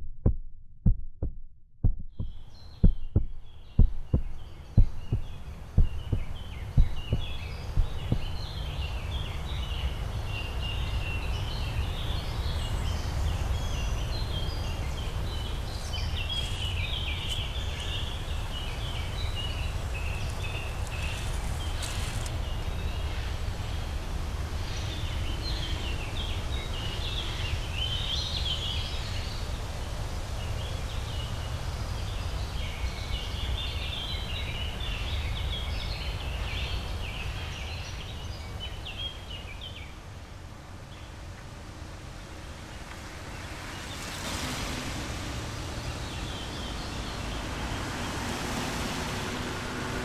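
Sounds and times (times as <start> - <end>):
deep heartbeat-like thumps: 0.0 - 8.4
steady low rumble: 0.0 - 8.9
birds chirping: 2.2 - 9.8, 12.5 - 22.3.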